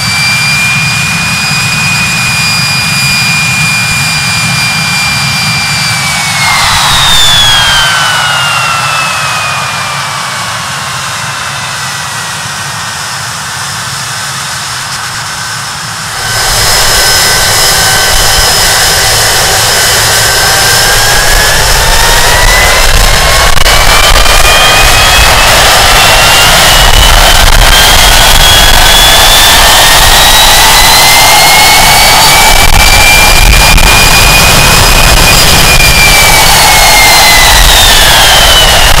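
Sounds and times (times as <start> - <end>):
jet engine whine: 0.0 - 39.0
deep engine rumble: 15.3 - 28.9.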